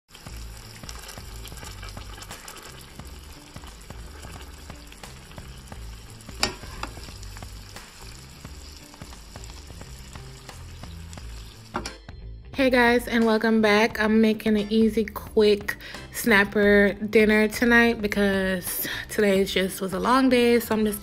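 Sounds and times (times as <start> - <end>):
fish sizzling in a skillet: 0.1 - 12.0.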